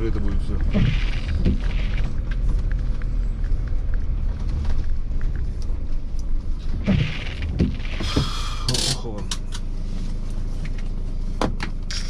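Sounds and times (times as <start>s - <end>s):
engine and road rumble: 0.0s - 12.0s.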